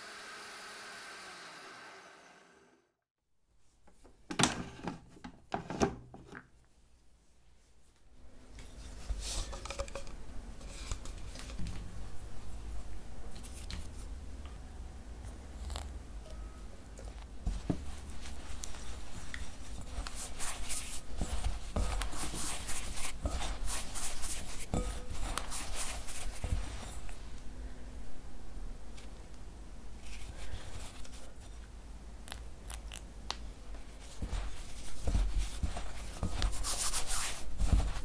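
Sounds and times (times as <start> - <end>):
hands rubbing damp flour in bowl: 17.4 - 27.3, 33.8 - 38.0.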